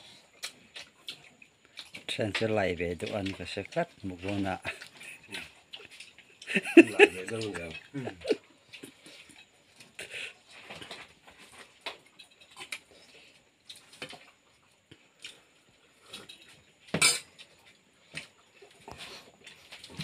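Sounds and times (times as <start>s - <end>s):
metal plates and spoon clinking: 16.2s - 17.3s.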